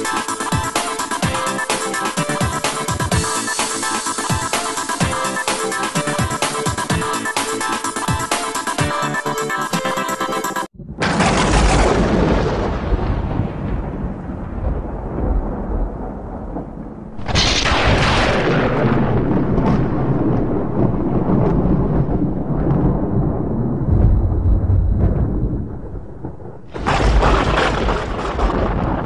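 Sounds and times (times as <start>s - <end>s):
music: 0.0s - 10.7s
booming hits with rumble: 10.8s - 29.0s.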